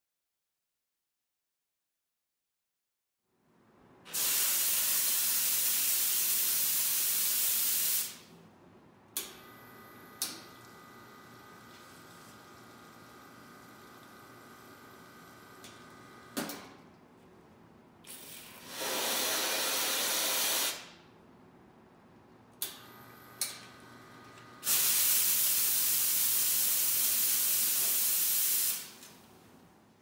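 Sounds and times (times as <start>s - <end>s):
steam wand hissing: 18.6s - 20.9s.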